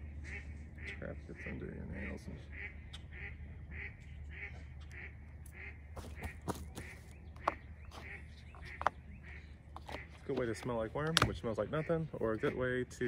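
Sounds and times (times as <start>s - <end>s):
bird calling: 0.0s - 12.6s
plastic tub clicks: 9.8s - 11.4s.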